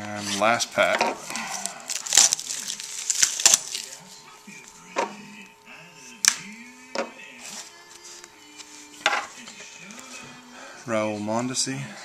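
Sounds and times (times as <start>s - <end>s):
plastic wrapper crinkling and tearing: 1.2s - 4.1s.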